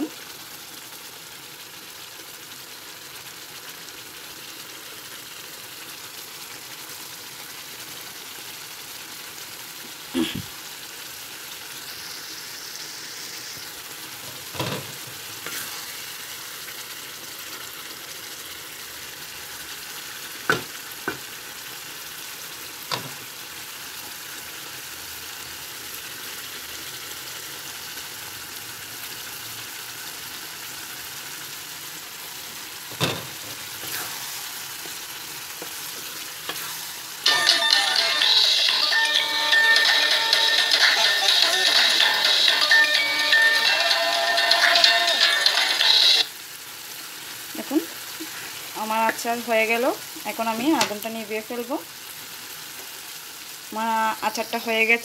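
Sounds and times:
sauce sizzling and bubbling in a pan: 0.0 - 55.0
wooden spatula knocking on pan: 20.5 - 21.2.

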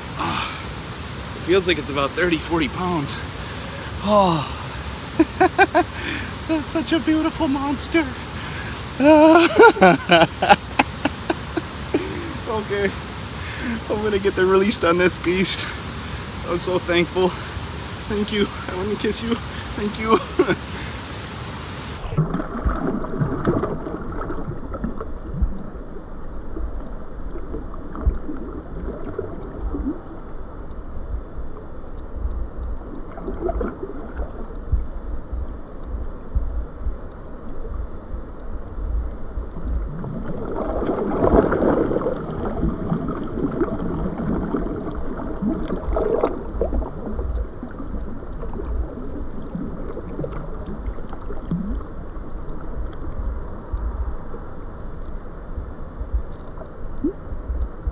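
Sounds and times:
river water splashing: 0.0 - 30.6, 32.8 - 34.6, 38.5 - 57.9
low microphone rumble: 20.3 - 57.9.

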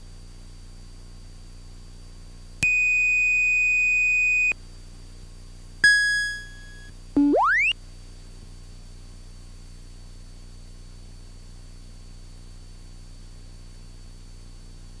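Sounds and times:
electronic alert tones: 5.8 - 7.7.

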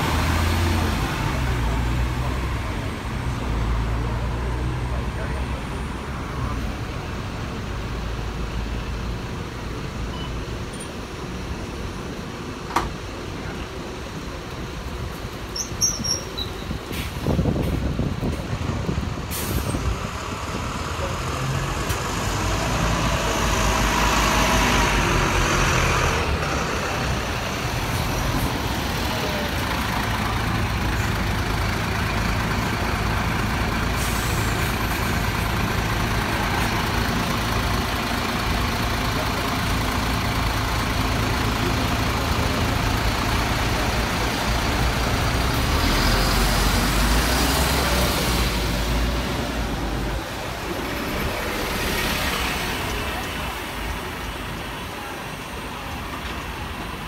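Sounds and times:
buses and road traffic passing: 0.0 - 57.0.

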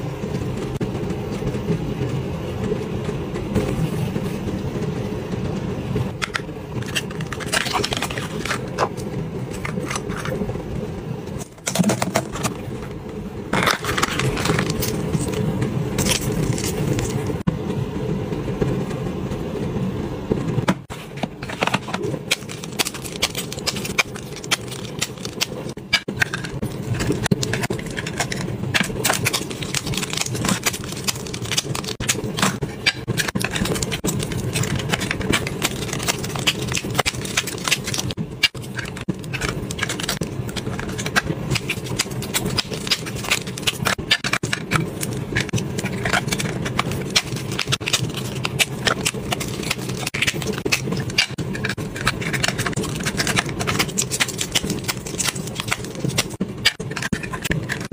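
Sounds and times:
steady low hum: 0.0 - 57.9
plastic packs clicking and crinkling: 6.2 - 10.4, 11.4 - 12.8, 13.5 - 17.3, 21.4 - 57.9.

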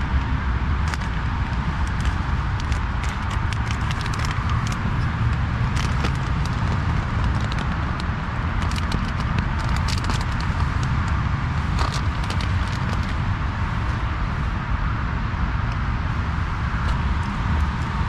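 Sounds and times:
low rumble of road traffic: 0.0 - 18.0
small clicks and crackles: 0.8 - 14.0.

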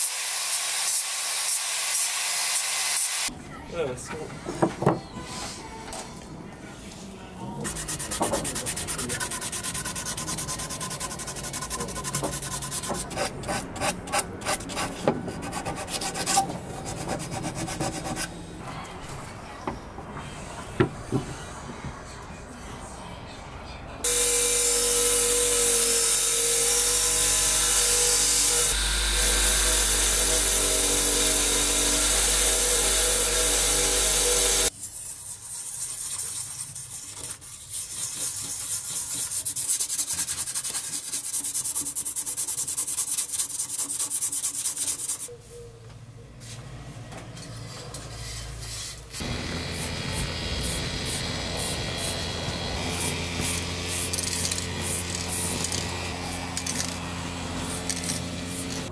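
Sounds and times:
blade scraping by hand: 7.6 - 18.4, 57.6 - 58.9
bench grinder grinding blade: 24.1 - 34.7, 49.2 - 58.9.

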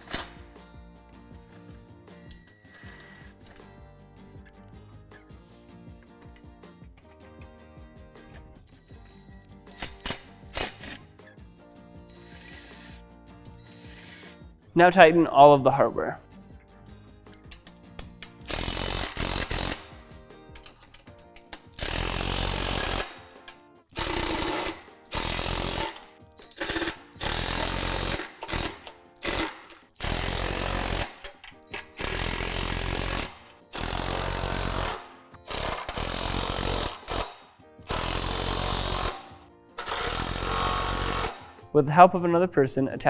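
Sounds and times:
cordless power driver driving bolts: 23.9 - 41.5.

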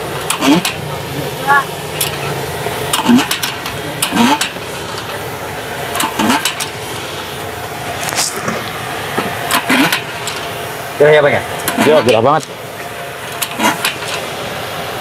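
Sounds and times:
fry cutter crunch and clack: 0.0 - 1.0, 1.9 - 5.3, 5.9 - 7.1, 8.0 - 10.5, 11.5 - 14.3
steady background noise: 0.0 - 15.0.

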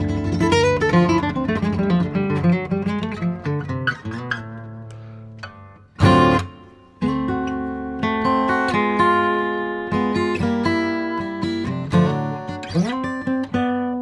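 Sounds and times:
acoustic guitar chords: 0.0 - 14.0.

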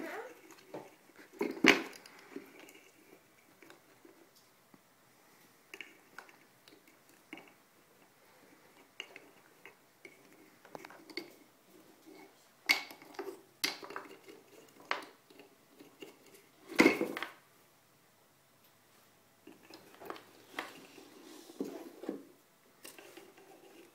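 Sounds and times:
wooden toy clattering over: 16.7 - 17.4.

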